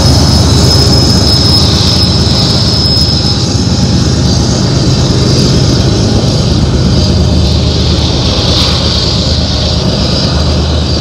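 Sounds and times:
high wheel squeal: 0:00.0 - 0:04.7
diesel locomotive engine drone: 0:00.0 - 0:11.0
train wheels clattering on rails: 0:00.0 - 0:11.0.

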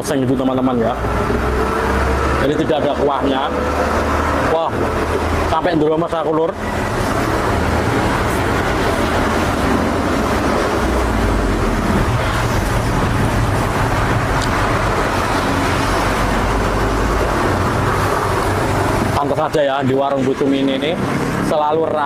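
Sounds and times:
vehicles passing on road: 0:00.0 - 0:22.0
low engine rumble: 0:00.6 - 0:22.0.

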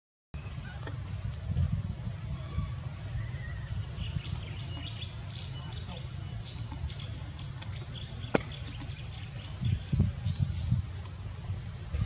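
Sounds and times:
steady low rumble: 0:00.4 - 0:12.0.

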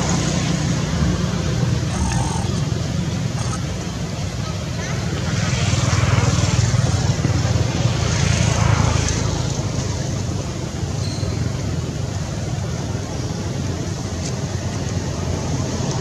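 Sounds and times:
engine rumble: 0:00.0 - 0:16.0.

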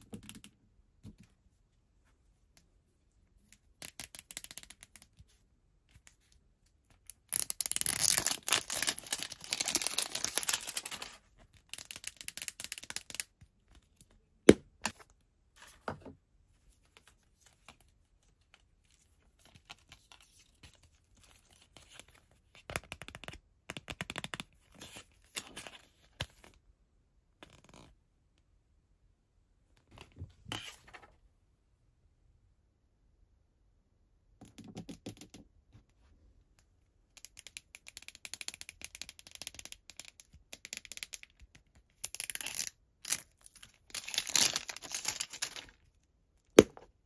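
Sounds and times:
plastic crinkling: 0:07.4 - 0:11.2.

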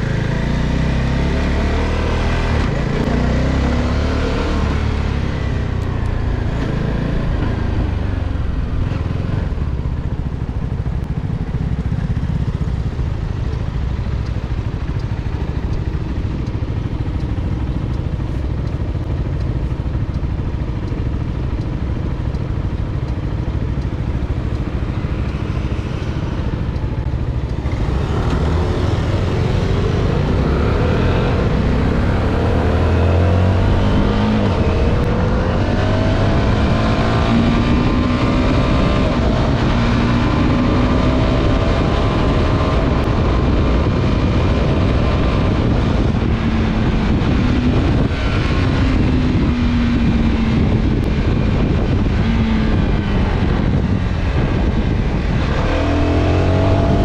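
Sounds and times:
traffic pulling away: 0:00.0 - 0:57.0
motorcycle engine idling: 0:07.9 - 0:27.7.

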